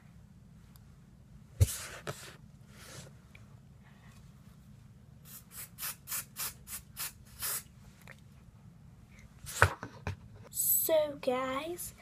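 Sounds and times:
hairspray spritzes hissing: 5.3s - 7.6s.

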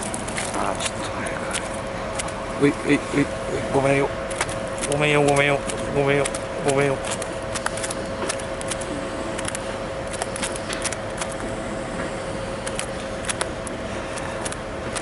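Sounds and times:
small clicks and ticks: 0.0s - 2.4s, 4.3s - 11.4s, 12.6s - 15.0s
steady humming tone: 0.0s - 15.0s.

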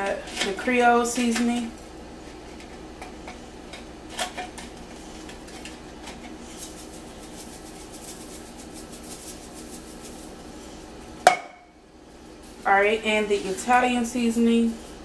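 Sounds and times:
steady low hum: 0.0s - 15.0s
spice container rattling: 6.4s - 10.4s.

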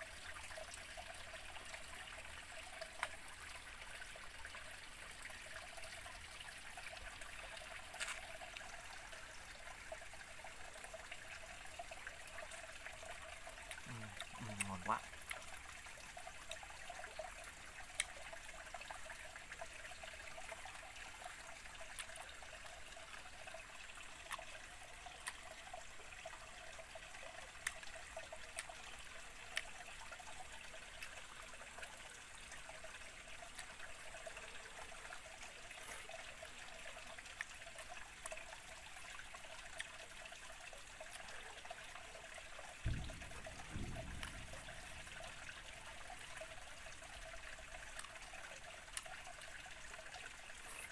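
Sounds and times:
stream trickling over rocks: 0.0s - 50.9s
low thump: 42.9s - 45.6s.

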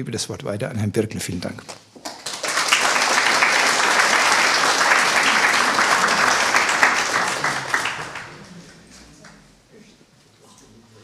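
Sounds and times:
audience applauding: 2.0s - 9.5s.

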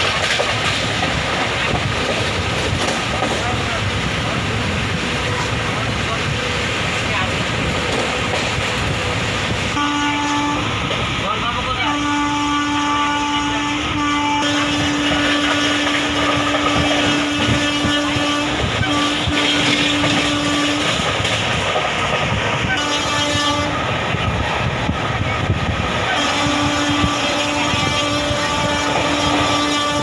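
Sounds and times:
train wheel and wind rush: 0.0s - 30.0s.

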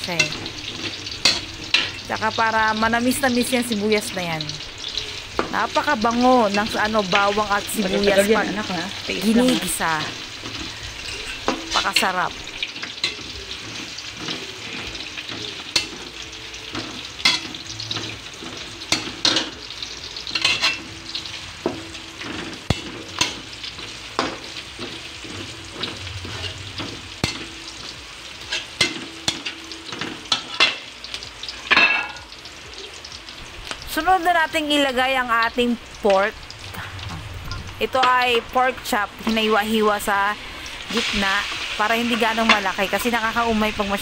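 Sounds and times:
garlic and onion sizzling in oil: 0.0s - 44.0s
metal spatula scraping a wok: 0.2s - 2.1s, 10.3s - 30.9s.

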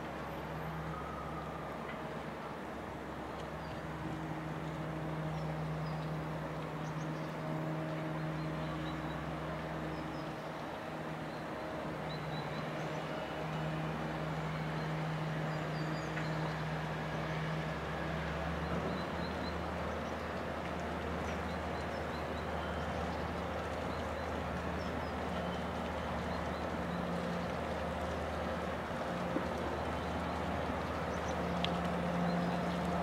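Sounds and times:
ship diesel engine drone: 0.0s - 33.0s.

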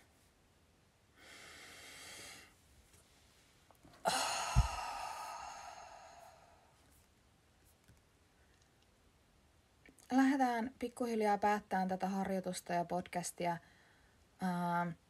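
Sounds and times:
in-breath: 1.2s - 2.6s, 4.0s - 6.8s, 13.6s - 14.2s
woman sighing: 4.0s - 6.6s
soft low thump: 4.4s - 5.1s.

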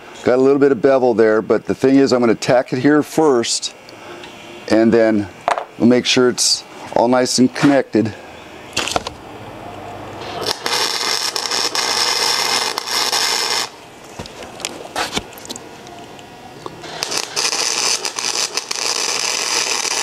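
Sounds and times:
welding arc crackling and hissing: 10.2s - 20.0s.

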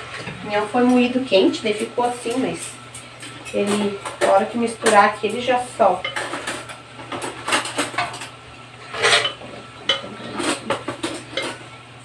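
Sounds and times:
wooden spoon scraping bowl and pot: 8.8s - 11.7s.

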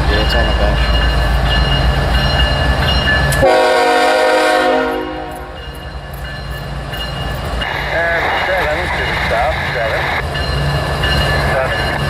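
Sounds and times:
diesel locomotive rumbling: 0.0s - 12.0s
train air horn blast: 3.4s - 5.6s.

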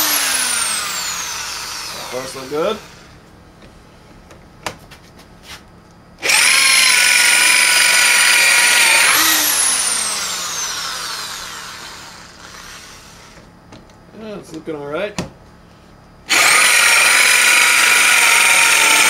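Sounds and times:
electric drill whining: 0.0s - 3.2s, 6.2s - 13.5s, 16.3s - 19.0s.

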